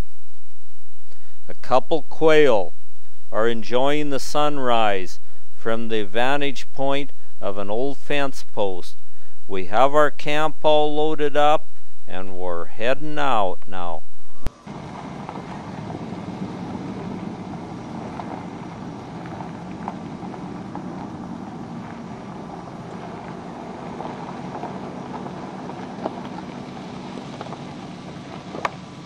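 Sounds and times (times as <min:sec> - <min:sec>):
vehicle engine and road noise: 0:14.4 - 0:29.0.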